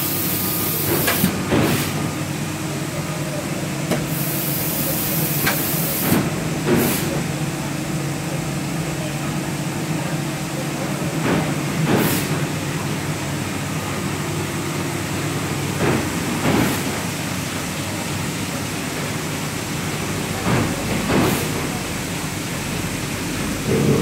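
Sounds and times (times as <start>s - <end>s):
binding machine humming: 0.0s - 9.1s.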